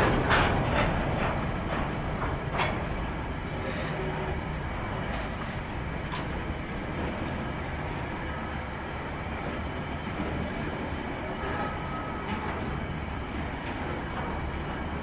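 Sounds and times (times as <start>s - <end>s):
freight train wheels rumbling on rail: 0.0s - 15.0s.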